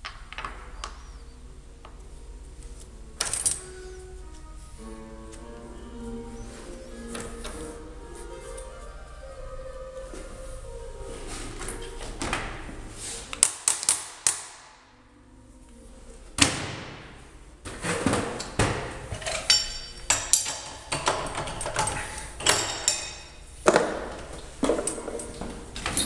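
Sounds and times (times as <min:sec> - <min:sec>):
metal tools clanking: 0:18.4 - 0:26.0.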